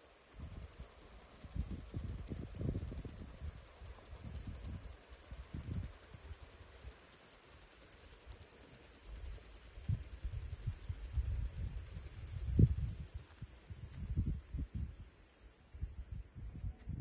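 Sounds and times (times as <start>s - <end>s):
wind rumbling on microphone: 1.4s - 6.4s, 9.8s - 15.1s, 15.7s - 17.0s.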